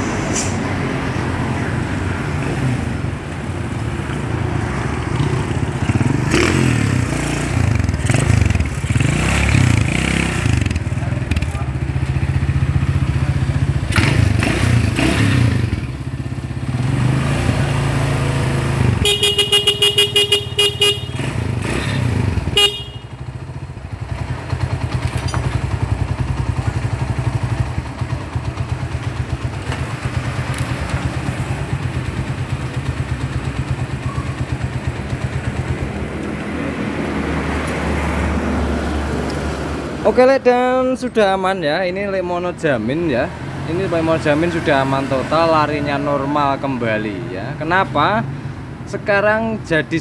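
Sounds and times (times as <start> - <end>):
motorcycle engine revving and idling: 1.1 - 41.0
motorcycle horn honking: 19.0 - 21.8, 22.4 - 23.4.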